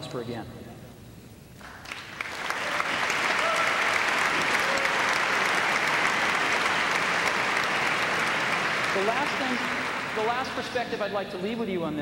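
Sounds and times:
audience applauding: 0:01.6 - 0:11.0.

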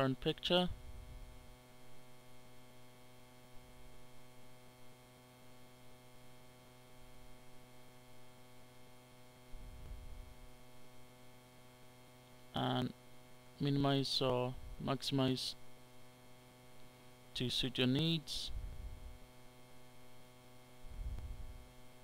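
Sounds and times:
faint mains hum: 0:00.0 - 0:22.0
faint low rumble: 0:20.8 - 0:21.6.

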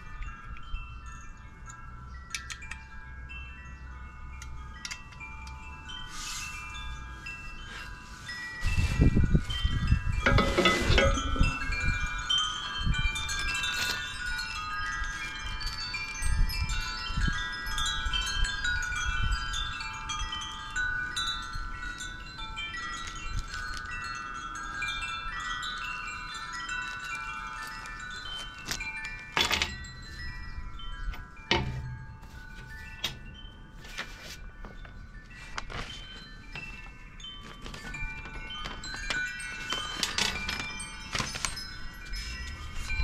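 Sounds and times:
wind chimes ringing: 0:00.0 - 0:43.0
metal parts knocking: 0:10.2 - 0:11.6.

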